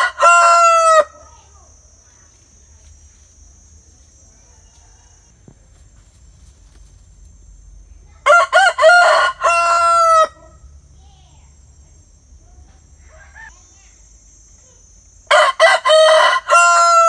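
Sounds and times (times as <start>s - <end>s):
rooster crowing: 0.0s - 1.3s, 4.4s - 5.5s, 8.2s - 10.7s, 13.0s - 13.5s, 15.3s - 17.0s.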